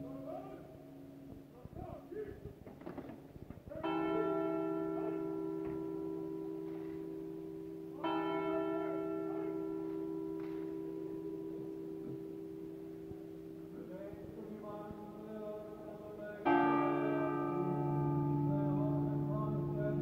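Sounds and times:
large church bell tolling: 3.7 - 20.0.

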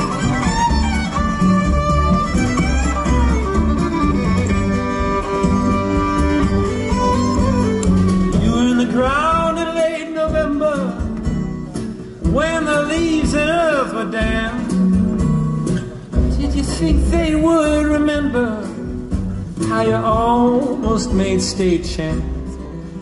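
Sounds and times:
violin melody: 0.0 - 9.6
acoustic guitar: 0.0 - 23.0
drums: 0.0 - 23.0
upright bass: 0.0 - 23.0.

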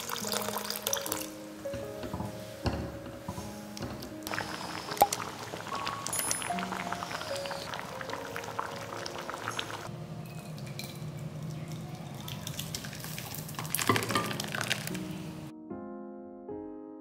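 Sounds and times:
liquid pouring into a bowl: 10.6 - 14.9.

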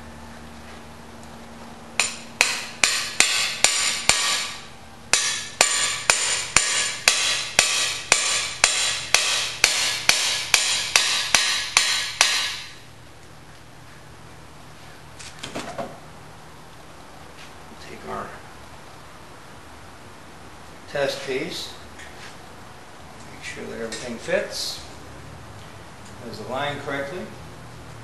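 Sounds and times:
hammer striking metal driver: 2.0 - 12.8.

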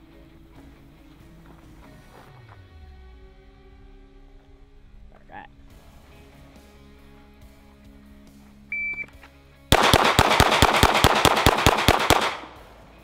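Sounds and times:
shot timer beep: 8.7 - 9.1
pistol shots: 9.7 - 13.0.

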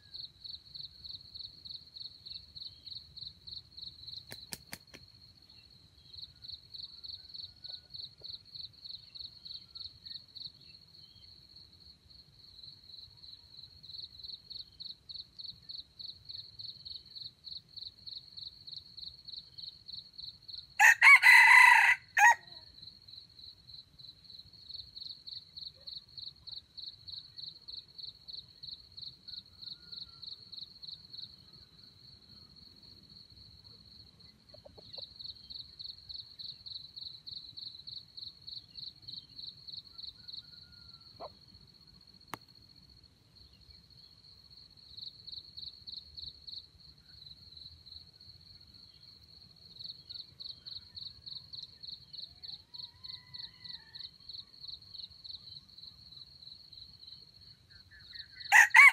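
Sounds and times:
insects chirping: 0.0 - 58.9
rooster crowing: 20.8 - 22.6, 40.0 - 41.3, 52.8 - 54.2, 58.4 - 58.9.

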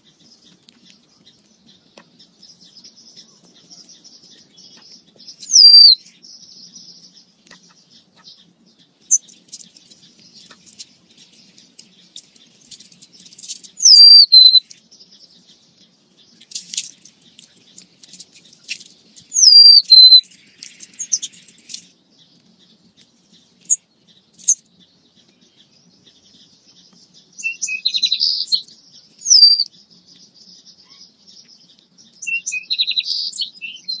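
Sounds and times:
songbirds chipping and whistling: 0.0 - 34.0.

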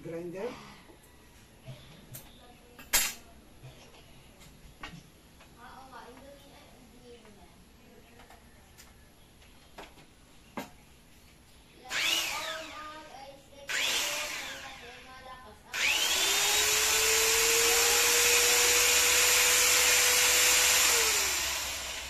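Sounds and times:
angle grinder running: 11.8 - 13.0, 13.7 - 22.0.

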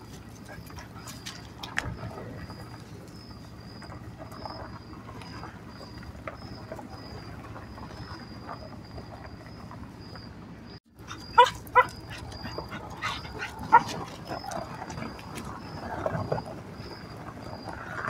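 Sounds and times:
dog barking: 11.1 - 14.4.

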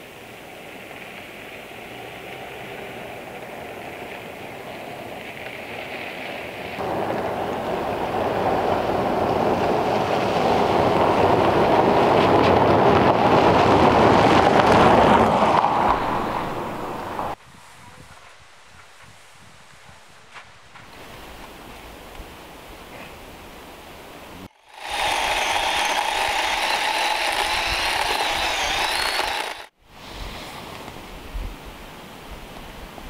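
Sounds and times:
vehicle engine: 0.8 - 17.4, 24.4 - 29.7
tyres crunching on gravel: 24.5 - 29.7.

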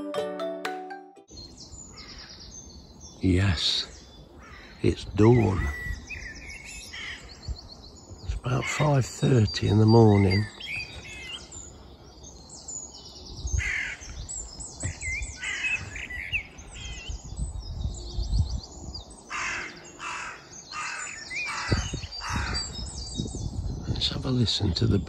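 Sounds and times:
harsh bird calls: 1.3 - 25.0
songbirds singing and twittering: 1.3 - 25.0.

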